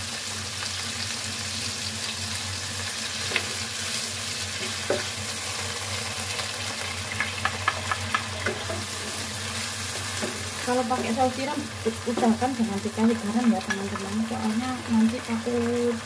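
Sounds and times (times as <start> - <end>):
chicken sizzling in frying pan: 0.0 - 16.0.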